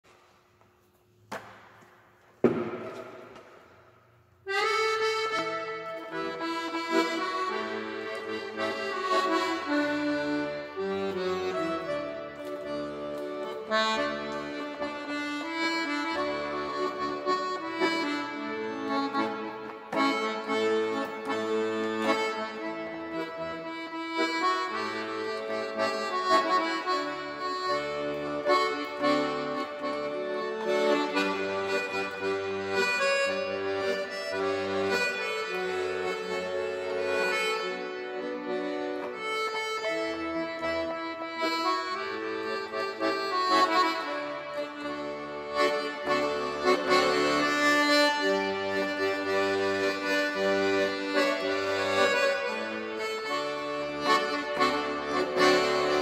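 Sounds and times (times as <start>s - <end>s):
accordion melody: 0.1s - 56.0s
sharp ringing knock: 2.4s - 3.3s.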